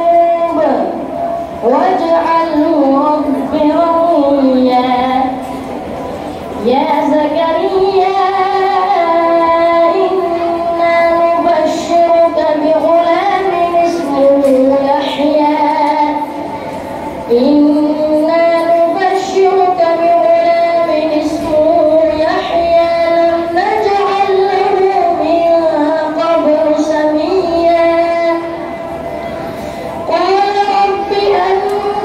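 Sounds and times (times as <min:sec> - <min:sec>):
child chanting: 0:06.6 - 0:16.5, 0:17.3 - 0:28.6, 0:30.1 - 0:32.0.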